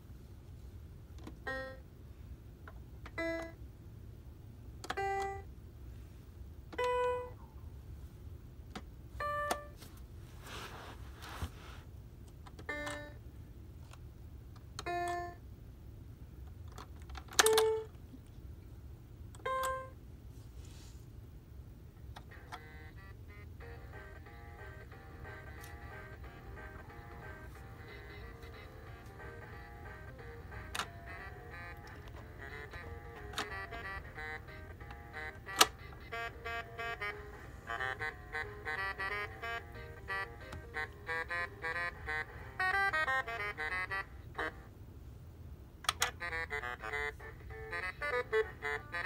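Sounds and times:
toy piano electronic notes: 1.3s - 1.8s, 3.1s - 3.6s, 4.8s - 5.5s, 6.8s - 7.4s, 9.2s - 9.8s, 12.6s - 13.2s, 14.8s - 15.4s, 19.4s - 20.0s, 22.2s - 44.7s, 45.9s - 49.0s.

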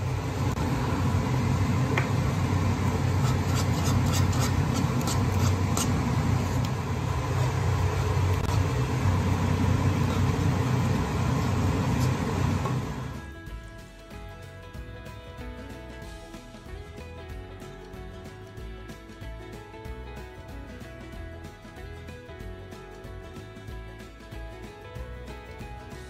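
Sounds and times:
low hum: 0.0s - 13.5s
wire whisk scraping a saucepan: 2.9s - 6.7s, 9.9s - 10.6s.

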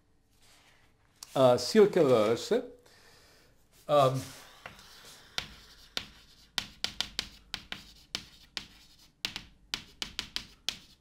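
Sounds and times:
chalk tapping and scraping on blackboard: 3.8s - 11.0s.

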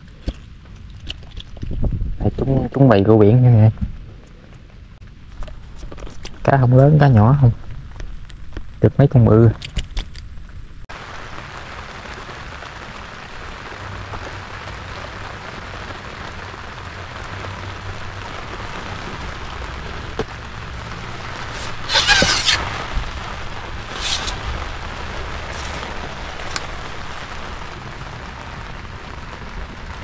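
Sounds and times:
light rain hissing: 10.7s - 30.0s.

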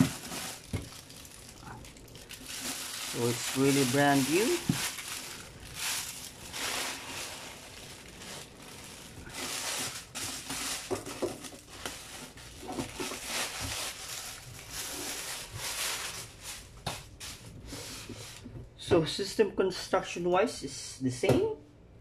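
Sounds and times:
plastic bag crinkling: 0.0s - 17.6s.

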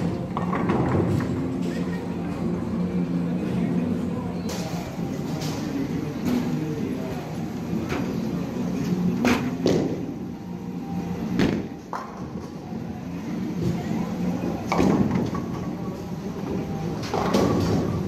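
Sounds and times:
bowling balls rolling: 0.0s - 1.7s.

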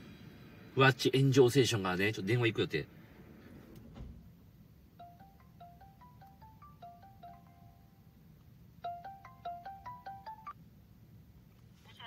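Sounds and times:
phone ringing chime melody: 5.0s - 8.1s, 8.8s - 10.6s.

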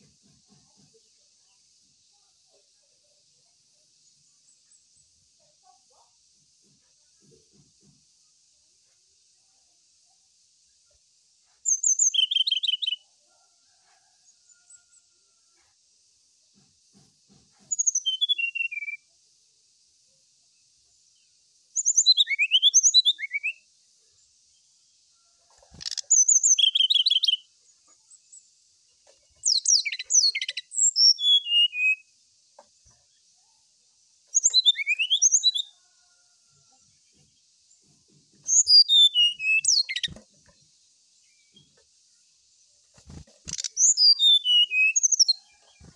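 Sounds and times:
bird whistles and trills: 17.7s - 19.0s, 21.8s - 23.6s, 25.8s - 27.4s, 29.4s - 32.0s, 34.4s - 35.6s, 38.5s - 40.2s, 43.5s - 45.4s.

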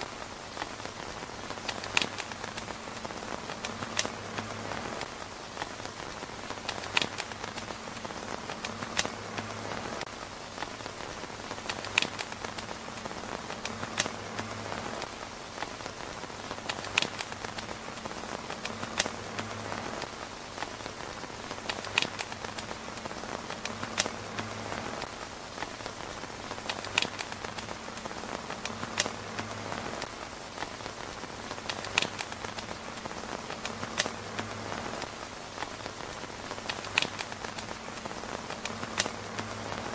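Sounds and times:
rain on tent fabric: 0.0s - 39.9s
sharp clicks: 0.5s - 5.8s, 6.4s - 10.1s, 11.5s - 15.7s, 16.5s - 20.7s, 21.5s - 30.8s, 31.5s - 39.9s.

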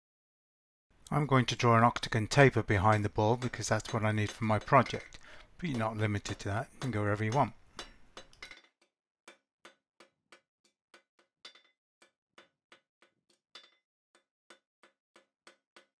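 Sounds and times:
hammer striking hot metal on anvil: 2.9s - 8.6s.

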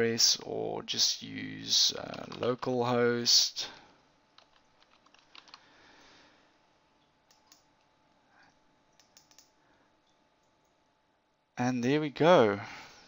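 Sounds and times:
keyboard and mouse clicks: 4.4s - 5.6s, 7.3s - 7.7s, 9.0s - 9.5s.

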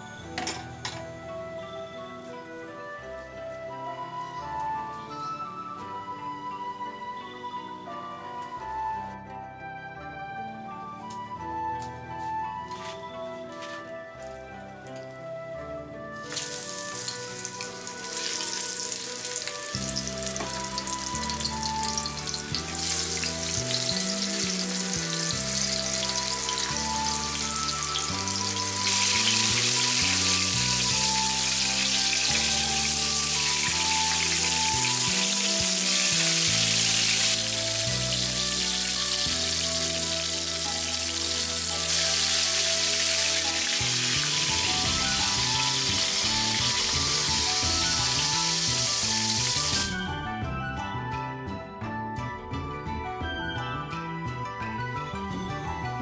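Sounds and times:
meat sizzling in oil: 16.2s - 50.0s.

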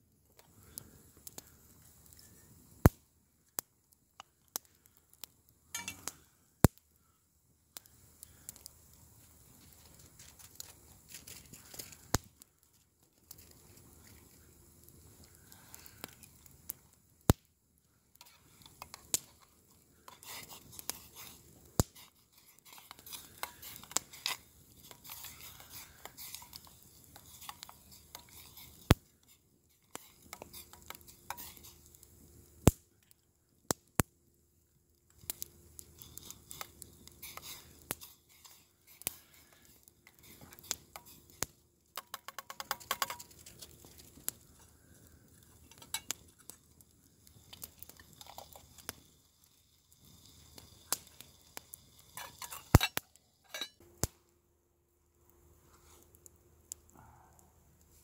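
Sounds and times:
campfire crackling and popping: 0.0s - 54.4s, 55.2s - 58.0s
utensil stirring metal pot: 18.2s - 31.9s, 36.0s - 44.0s, 47.3s - 53.8s.

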